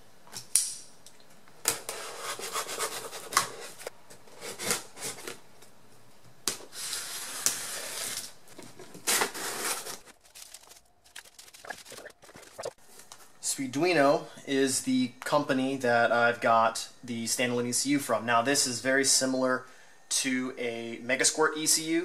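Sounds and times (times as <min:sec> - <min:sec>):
packing paper rustling: 0:06.8 - 0:13.1
cardboard tearing: 0:08.9 - 0:12.6.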